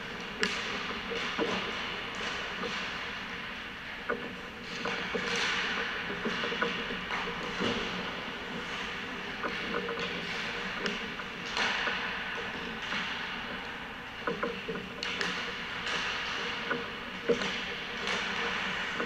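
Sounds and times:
sticks striking pucks: 0:00.2 - 0:03.2, 0:04.1 - 0:19.0.

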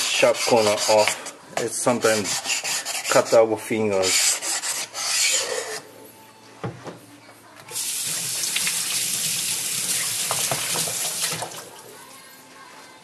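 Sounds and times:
water running from tap: 0:07.7 - 0:11.8.

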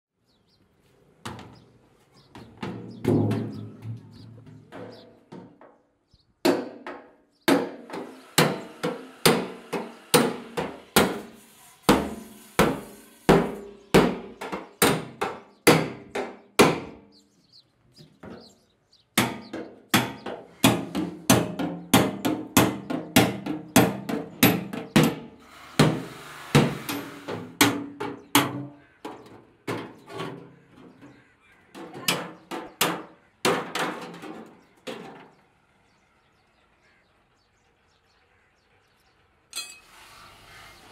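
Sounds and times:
hammer striking chisel on metal: 0:06.5 - 0:11.3, 0:19.2 - 0:28.6.

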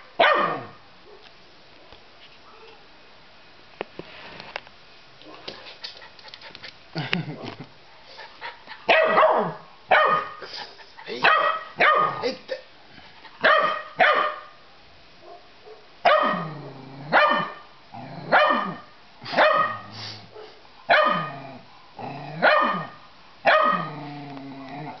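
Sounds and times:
puppy barking: 0:00.1 - 0:01.3, 0:08.9 - 0:10.5, 0:11.1 - 0:12.3, 0:13.4 - 0:14.6, 0:15.2 - 0:16.5, 0:17.1 - 0:17.6, 0:18.3 - 0:21.4, 0:22.4 - 0:23.9.

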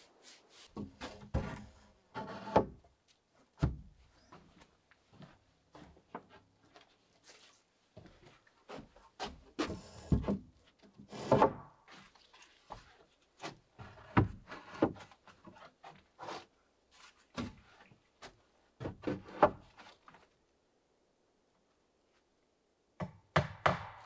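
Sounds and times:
knocks on wood: 0:23.0 - 0:24.0.

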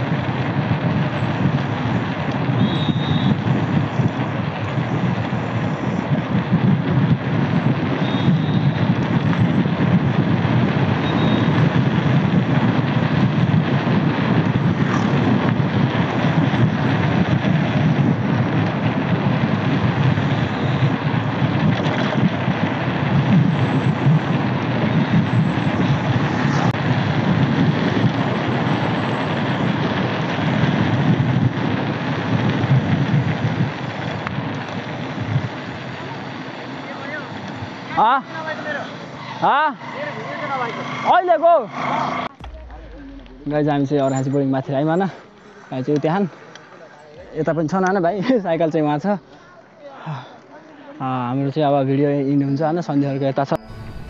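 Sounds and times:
wind buffeting microphone: 0:00.0 - 0:36.6, 0:42.2 - 0:45.2, 0:53.5 - 0:54.0
tyre noise on asphalt: 0:00.0 - 0:48.1.

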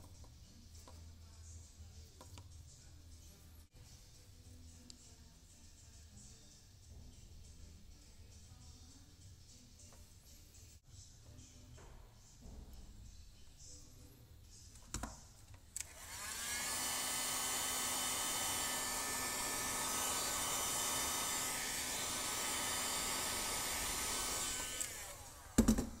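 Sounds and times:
hot-air gun fan whine: 0:15.8 - 0:25.7.

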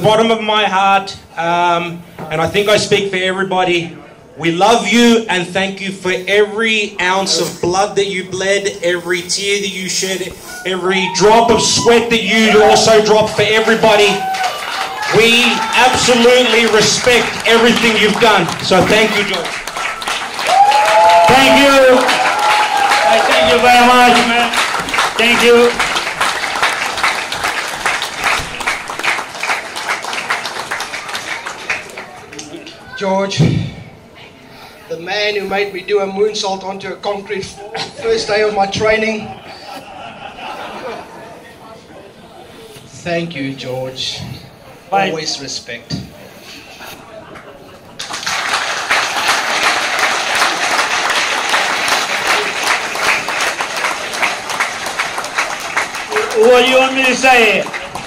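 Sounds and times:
audience applauding: 0:11.1 - 0:32.6, 0:47.3 - 0:58.0.

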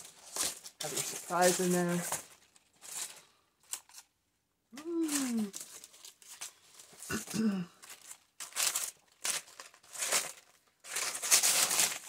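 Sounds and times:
dry leaves crinkling: 0:00.0 - 0:04.0, 0:05.0 - 0:07.0, 0:07.8 - 0:12.0
voice humming: 0:04.8 - 0:05.6.

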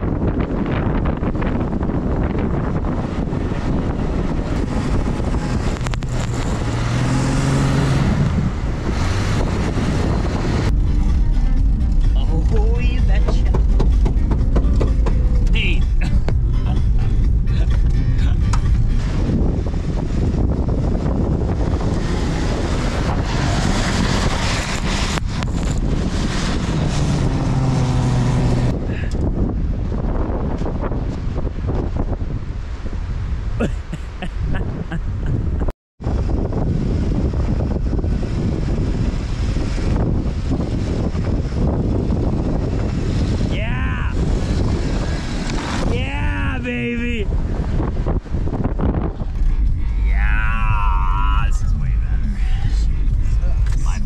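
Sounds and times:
engine and tyres rumbling: 0:00.0 - 0:54.0
rushing wind noise: 0:00.0 - 0:54.0
engine revving hard: 0:03.5 - 0:10.7, 0:18.9 - 0:29.1.

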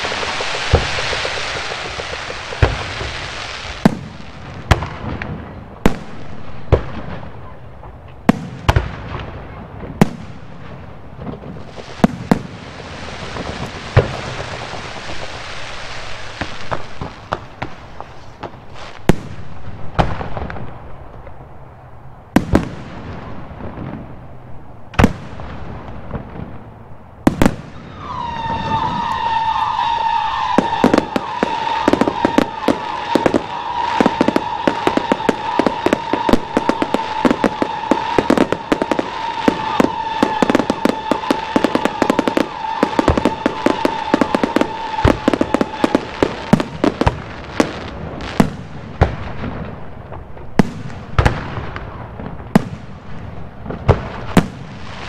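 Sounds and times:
firework bangs and crackle: 0:00.0 - 0:55.0
high whistling tone: 0:27.8 - 0:46.0.

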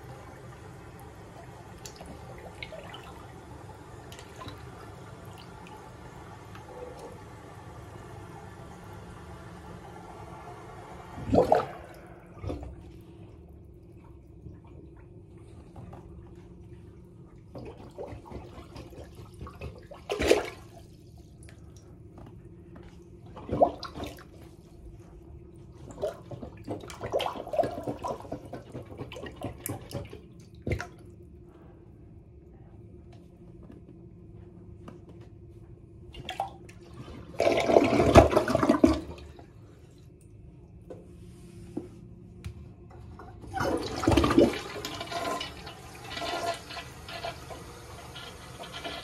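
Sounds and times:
toilet flush swirling: 0:00.0 - 0:21.4, 0:23.3 - 0:24.6, 0:25.8 - 0:31.0, 0:36.2 - 0:39.8, 0:43.2 - 0:49.0
plunger sloshing and sucking: 0:00.0 - 0:21.8, 0:23.2 - 0:31.1, 0:36.2 - 0:40.2, 0:42.8 - 0:49.0.

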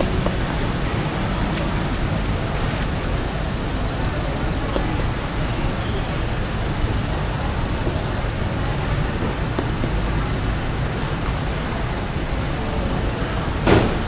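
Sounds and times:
street traffic rumble: 0:00.0 - 0:14.0
sharp knock: 0:13.7 - 0:14.0.

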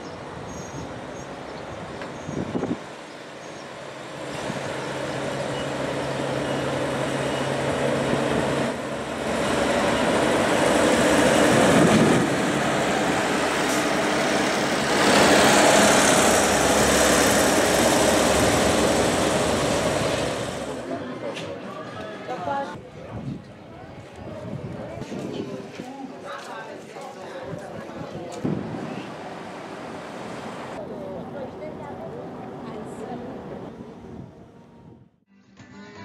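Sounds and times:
diesel train engine: 0:00.1 - 0:21.7, 0:28.4 - 0:35.0.

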